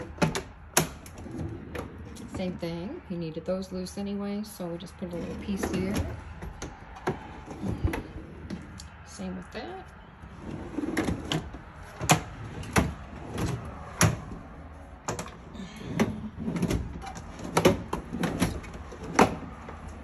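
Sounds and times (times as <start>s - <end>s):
metal drawers sliding: 0.0s - 2.5s, 5.0s - 8.7s, 10.3s - 20.0s.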